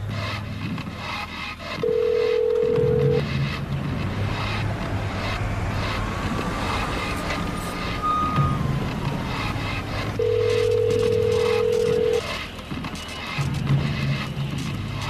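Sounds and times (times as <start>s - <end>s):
telephone line tone: 1.8s - 3.2s, 10.2s - 12.2s.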